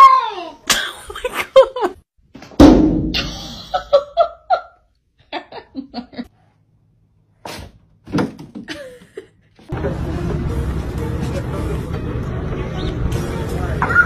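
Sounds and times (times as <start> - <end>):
person laughing: 0.8 - 2.0, 3.2 - 6.3, 8.7 - 10.0.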